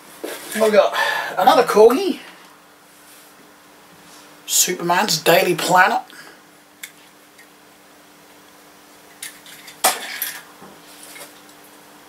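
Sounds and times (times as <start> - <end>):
low steady hum: 0.0 - 12.0
toy cars clattering: 9.1 - 10.5.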